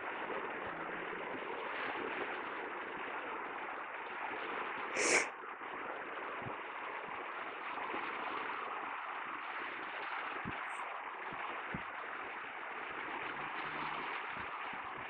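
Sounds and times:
waves breaking on a beach: 0.0 - 15.0
loud breathy burst: 5.0 - 5.3.

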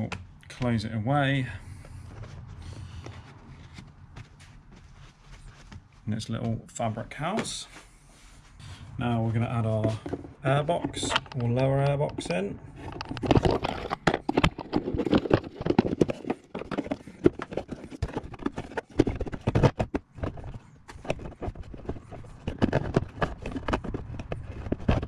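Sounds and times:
plastic housing knocking and scraping: 9.4 - 25.0.

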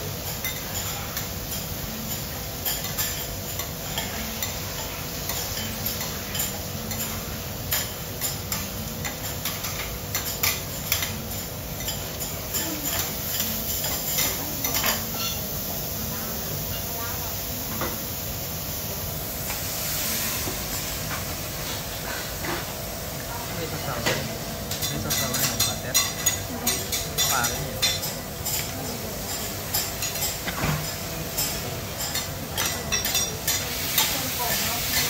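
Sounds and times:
food sizzling on hot plate: 0.0 - 35.0.

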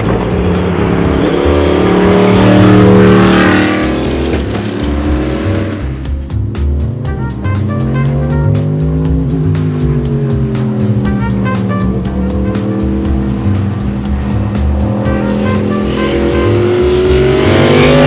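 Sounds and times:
racing car passing at speed: 0.0 - 5.9
music with a steady beat: 4.8 - 18.0.

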